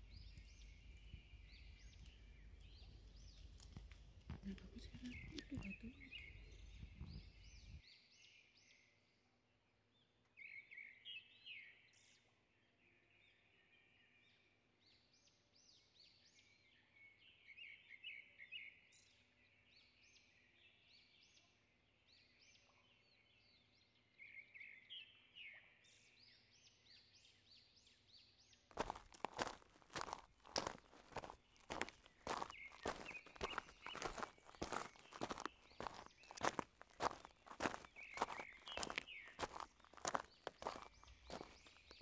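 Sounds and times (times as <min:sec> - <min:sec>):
faint birds chirping: 0:00.0 - 0:08.4, 0:28.7 - 0:42.0.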